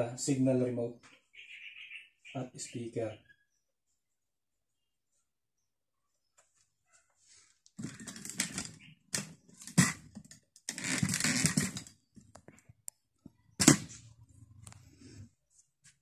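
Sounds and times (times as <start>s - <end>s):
plastic cover scraping and rubbing: 7.7s - 12.6s
plastic cover knocking down: 7.8s - 11.9s, 13.6s - 14.0s.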